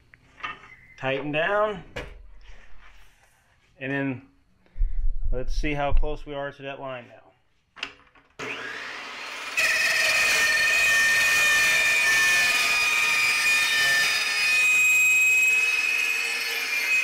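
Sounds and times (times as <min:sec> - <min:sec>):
saw cutting metal tube: 0:08.4 - 0:17.0.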